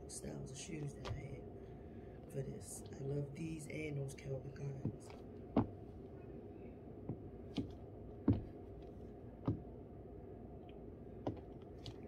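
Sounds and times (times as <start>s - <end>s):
low hum: 0.0s - 12.0s
high heels tapping on floor: 4.8s - 5.8s, 7.1s - 8.6s, 9.4s - 9.7s, 11.2s - 12.0s.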